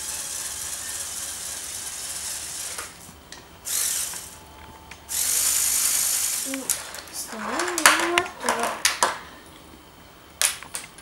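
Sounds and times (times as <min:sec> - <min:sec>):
motor gear whir: 0:00.0 - 0:06.8.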